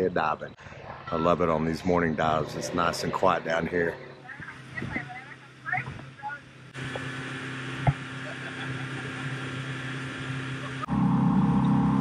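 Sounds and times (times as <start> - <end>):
outboard motor running: 6.7 - 12.0.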